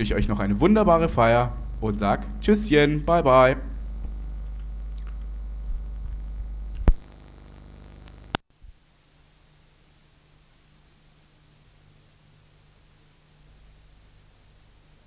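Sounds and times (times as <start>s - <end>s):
low hum: 0.0s - 8.4s
tape hiss: 0.0s - 15.0s.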